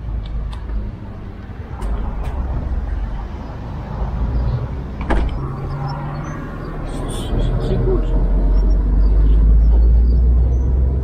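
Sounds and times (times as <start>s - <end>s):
low rumble: 0.8s - 7.6s.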